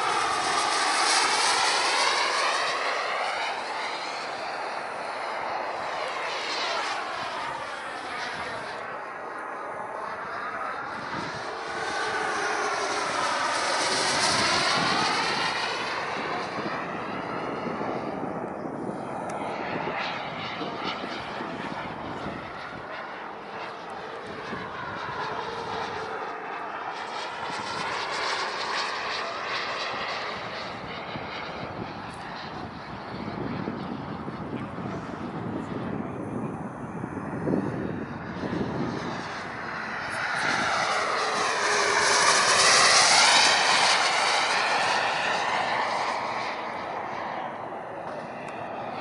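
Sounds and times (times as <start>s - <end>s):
model jet engine passing: 0.0s - 49.0s.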